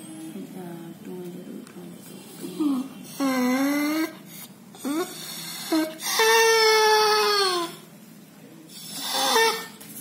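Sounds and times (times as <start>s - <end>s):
dog whining: 2.5s - 7.9s, 8.7s - 9.9s.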